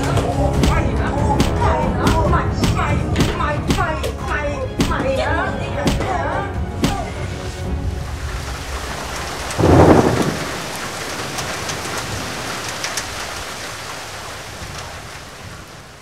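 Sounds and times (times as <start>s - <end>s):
heavy rain: 7.2s - 16.0s
thunderclap rumbling: 8.2s - 16.0s.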